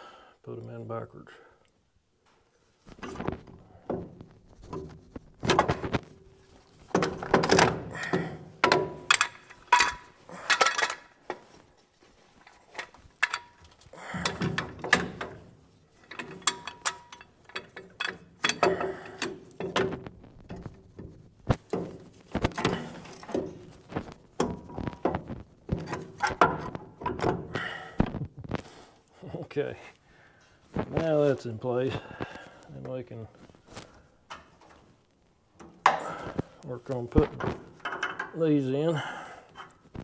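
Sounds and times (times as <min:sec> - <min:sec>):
metal brake parts clanking: 0:06.8 - 0:11.1, 0:12.6 - 0:20.8.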